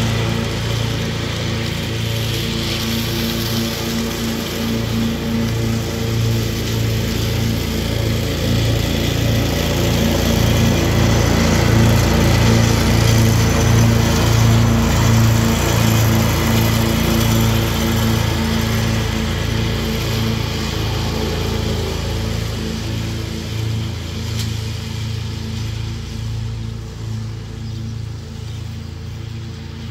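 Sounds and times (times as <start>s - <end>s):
ride-on mower engine: 0.0s - 29.9s.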